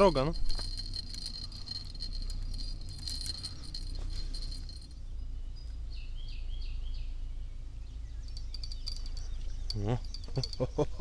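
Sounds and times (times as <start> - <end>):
bite-alarm bell jingling: 0.0 - 5.1, 8.2 - 11.0
bird chirping: 0.0 - 11.0.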